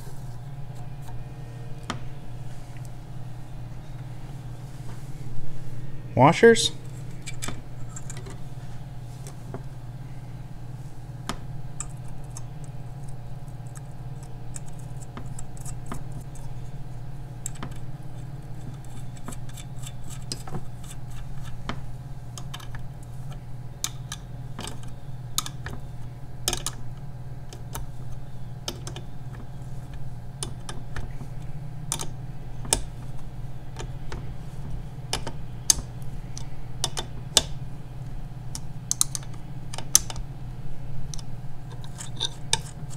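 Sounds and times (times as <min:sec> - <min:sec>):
steady low hum: 0:00.0 - 0:42.9
nuts and washers clicking: 0:35.1 - 0:37.6, 0:38.5 - 0:40.2.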